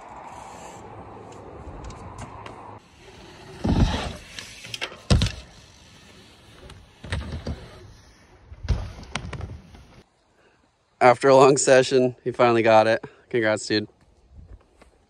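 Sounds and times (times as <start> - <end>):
bike clicks and rattles: 0.0 - 2.8, 3.6 - 7.8.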